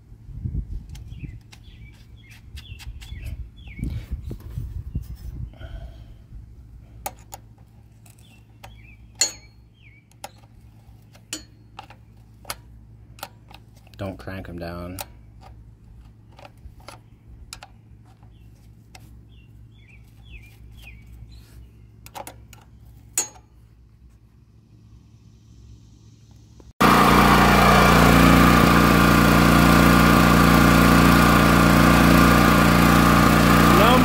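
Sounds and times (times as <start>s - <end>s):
engine running: 5.6s - 34.0s.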